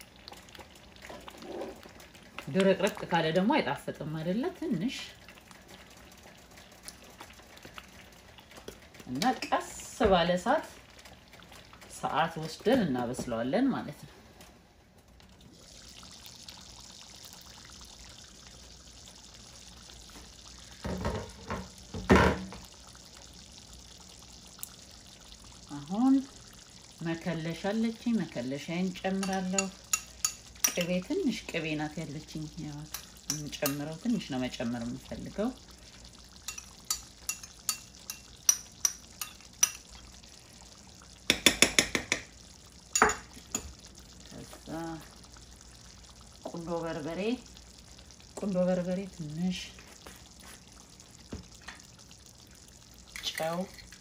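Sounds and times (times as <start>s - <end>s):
thick stew boiling: 0.0s - 54.0s
metal spoon clinking on dishes: 29.2s - 30.9s, 36.5s - 39.8s, 43.0s - 43.7s.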